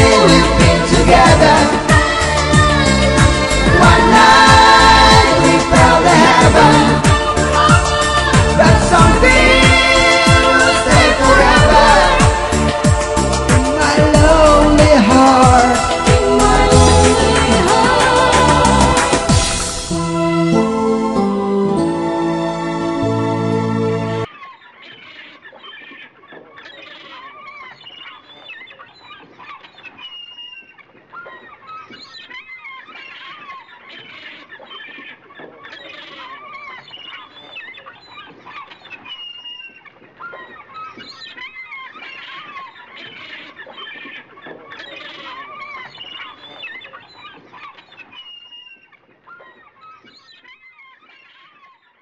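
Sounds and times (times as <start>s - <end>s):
birds chirping in chorus: 26.6s - 52.0s.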